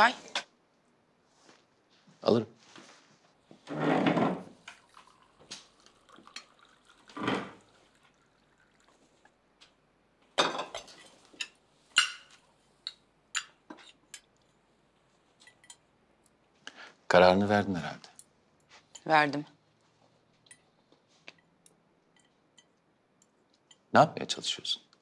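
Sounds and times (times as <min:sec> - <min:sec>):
chair scraping: 0:02.7 - 0:04.6, 0:07.1 - 0:07.6
tea pouring into cup: 0:04.6 - 0:09.4
china and cutlery clinking: 0:10.4 - 0:14.3.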